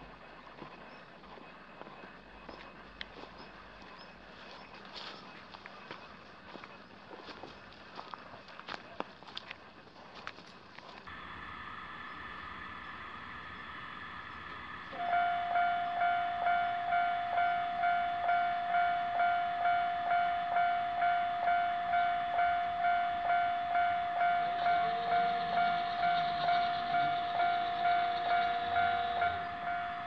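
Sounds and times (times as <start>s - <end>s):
barrier mechanism hum: 11.1s - 18.3s
level crossing warning bell: 14.0s - 30.0s.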